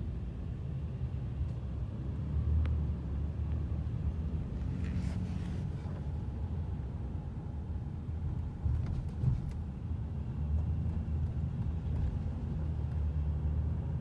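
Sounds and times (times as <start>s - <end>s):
train rumble from inside: 8.0s - 13.0s.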